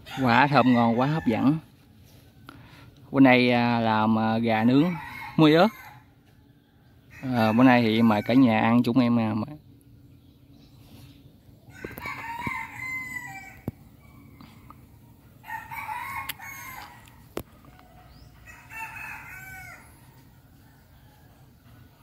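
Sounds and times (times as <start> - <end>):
rooster crowing: 0.0 - 1.7, 4.6 - 6.2, 7.1 - 8.7, 11.7 - 14.8, 15.4 - 21.8.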